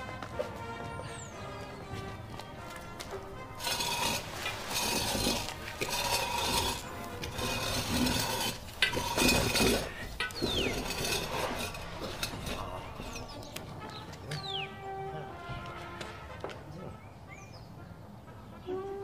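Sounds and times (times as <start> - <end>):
small objects rustling and scraping: 2.9 - 14.5.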